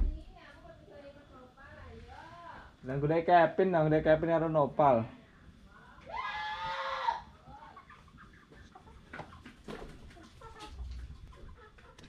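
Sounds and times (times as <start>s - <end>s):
chicken clucking: 7.5s - 12.0s.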